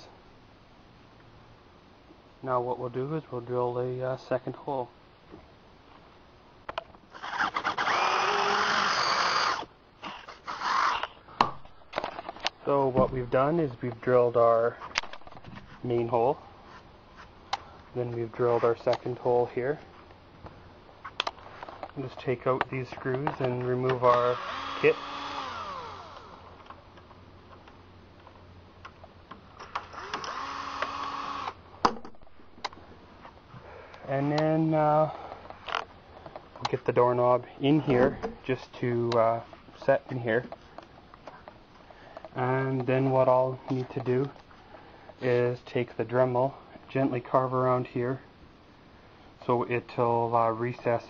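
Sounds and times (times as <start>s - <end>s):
power drill boring into wood: 7.2s - 11.1s, 24.1s - 26.5s, 29.7s - 31.6s
drill clicks: 7.2s - 11.2s, 23.3s - 26.5s, 29.6s - 31.6s.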